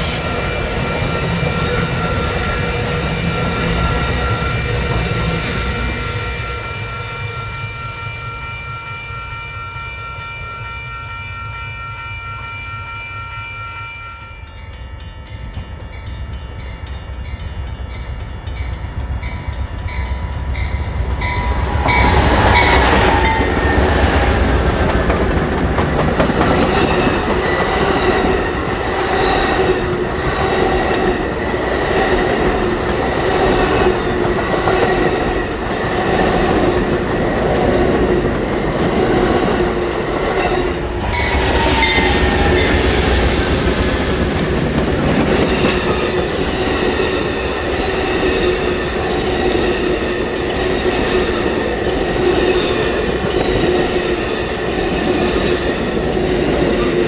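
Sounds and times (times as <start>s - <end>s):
train wheels rumbling on rails: 0.0s - 11.6s, 14.4s - 57.0s
crossing bell ringing: 0.0s - 37.1s, 38.2s - 57.0s
train horn: 3.2s - 14.5s.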